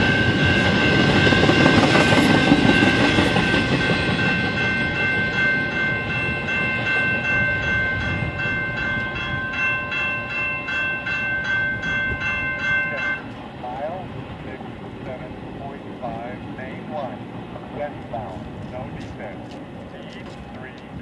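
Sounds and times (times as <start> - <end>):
electronic crossing bell ringing: 0.0 - 13.4
rail cars rumbling past: 0.0 - 21.0.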